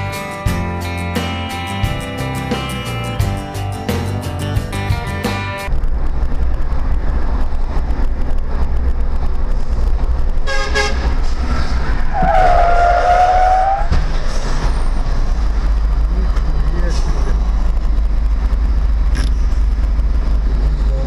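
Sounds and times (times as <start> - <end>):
vehicle rumble on road: 5.6 - 21.0
car horn: 10.4 - 11.1, 12.2 - 13.9.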